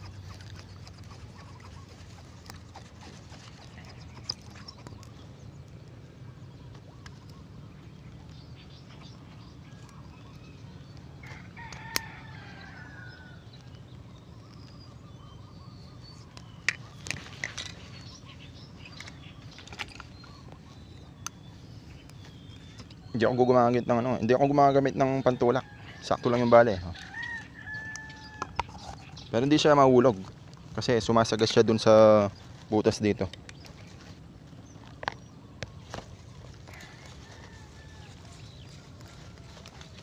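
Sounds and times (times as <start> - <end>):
steady low hum: 0.0 - 40.0
rooster crowing: 11.2 - 13.5, 25.2 - 28.7, 36.8 - 40.0.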